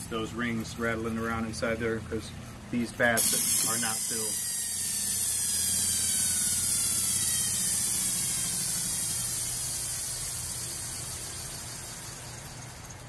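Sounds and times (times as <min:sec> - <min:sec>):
electric motors whirring down: 0:03.2 - 0:13.0.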